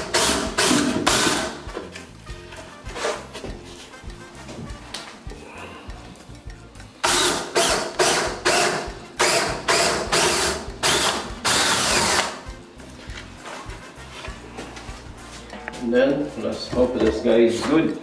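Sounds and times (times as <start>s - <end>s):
cordless drill boring into wood: 0.0s - 1.5s, 7.0s - 12.3s.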